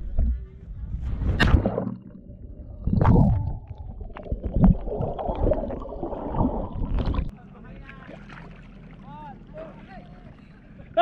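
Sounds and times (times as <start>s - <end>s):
underwater rumbling and bubbling: 0.0s - 7.3s.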